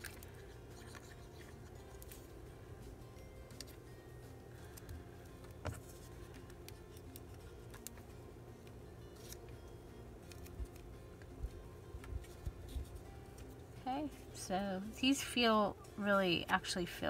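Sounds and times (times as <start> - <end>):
faint steady hum: 0.0 - 17.0
paper clicks and taps: 4.7 - 9.6.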